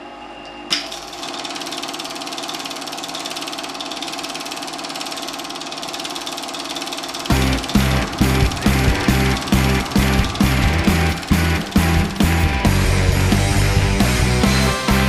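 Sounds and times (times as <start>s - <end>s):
film projector clatter: 0.7s - 14.2s
music with heavy beat: 7.3s - 15.0s.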